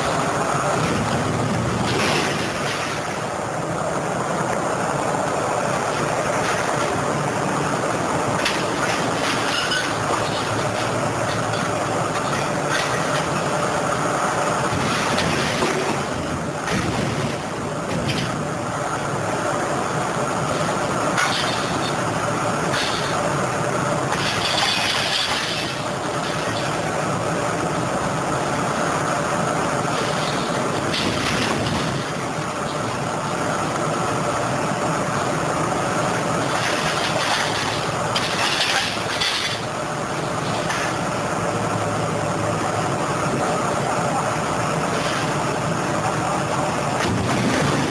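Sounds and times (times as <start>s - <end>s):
diesel engine and hydraulics: 0.0s - 47.9s
scrap metal clanking: 8.4s - 13.5s, 24.1s - 26.9s, 36.4s - 41.0s.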